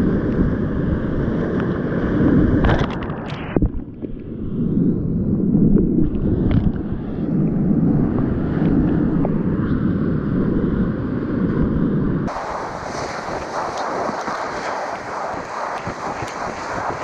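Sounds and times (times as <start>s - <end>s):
wind on microphone: 0.0s - 17.0s
whitewater rushing: 12.3s - 17.0s.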